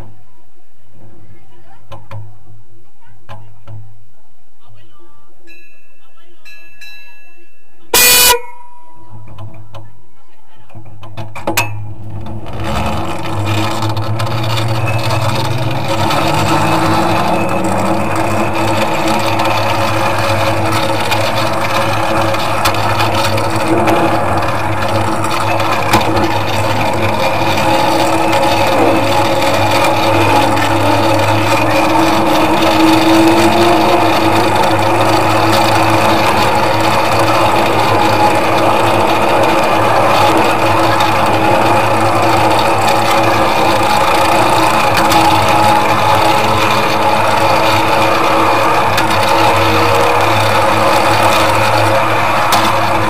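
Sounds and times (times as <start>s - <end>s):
train wheels rattling on rails: 10.7s - 53.0s.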